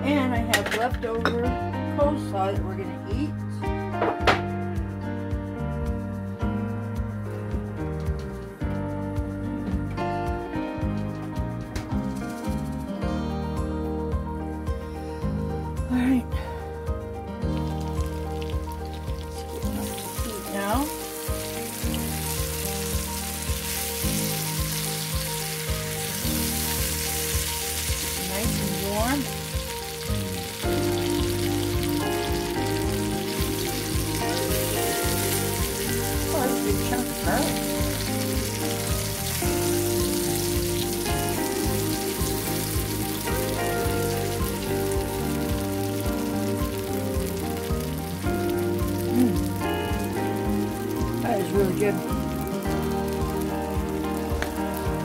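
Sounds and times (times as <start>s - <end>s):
potato frying in oil: 17.5s - 55.0s.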